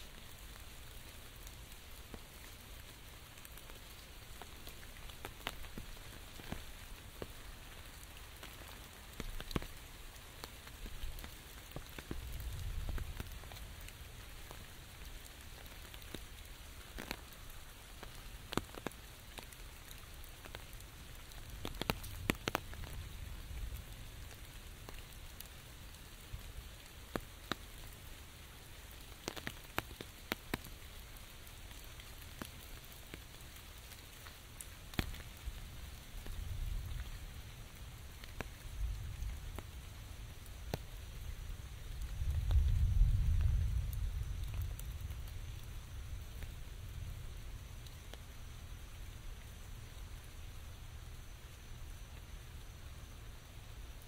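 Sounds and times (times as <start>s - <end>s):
rain on an umbrella: 0.0s - 54.0s
drops ticking on canopy: 3.4s - 25.4s, 28.9s - 35.5s.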